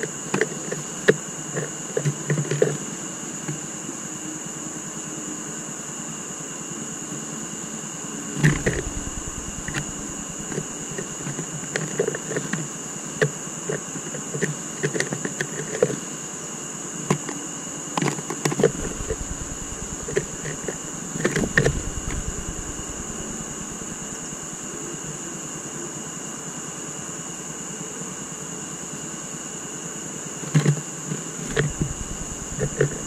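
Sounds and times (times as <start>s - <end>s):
steady high-pitched tone: 8.4s - 11.3s, 18.6s - 25.2s, 31.5s - 33.0s.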